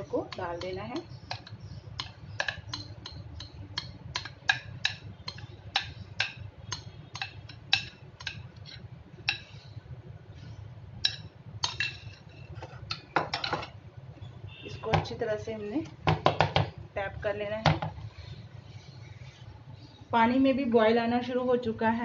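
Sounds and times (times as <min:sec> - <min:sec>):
spoon knocking metal tin: 0:00.2 - 0:08.5
spoon scraping glass bowl: 0:11.1 - 0:13.7.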